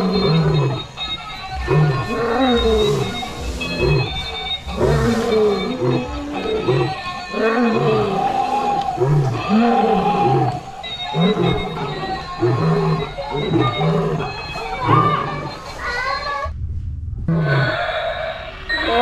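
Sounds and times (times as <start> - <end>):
toy lion roars and growls: 0.0 - 1.0, 1.6 - 16.3.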